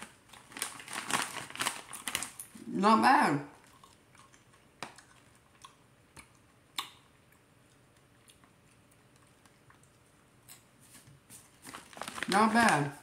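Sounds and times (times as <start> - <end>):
person chewing crunchy chip: 3.6 - 10.7.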